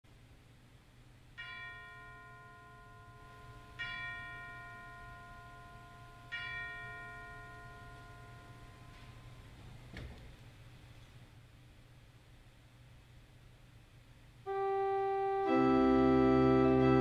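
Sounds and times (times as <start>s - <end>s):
bell ringing: 1.4s - 9.6s.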